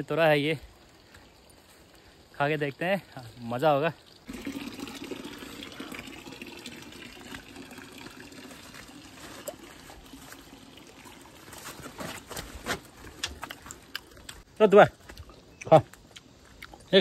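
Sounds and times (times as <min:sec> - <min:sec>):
water trickling: 0:00.0 - 0:12.3
crunchy fruit being chewed: 0:08.4 - 0:17.0.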